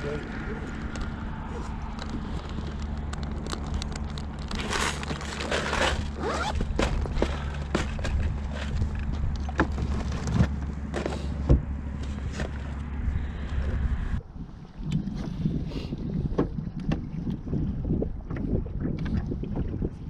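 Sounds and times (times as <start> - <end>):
steady low hum: 0.0 - 20.0
plastic packs rustling: 2.2 - 8.9.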